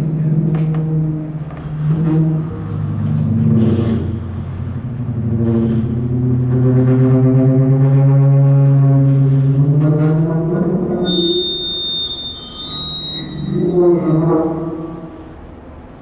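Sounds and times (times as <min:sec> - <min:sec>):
droning drum feedback: 0:00.0 - 0:15.9.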